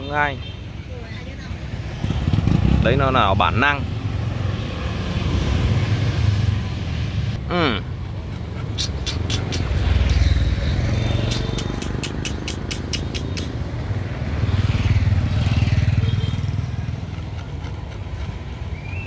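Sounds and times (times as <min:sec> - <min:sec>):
motorbikes passing: 0:00.0 - 0:19.0
street traffic: 0:00.0 - 0:19.0
sharp clicks: 0:08.8 - 0:10.3, 0:11.2 - 0:13.6.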